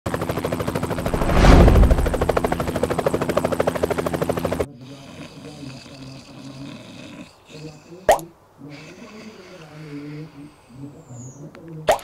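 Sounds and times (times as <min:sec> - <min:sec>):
helicopter rotor chopping: 0:00.2 - 0:04.6.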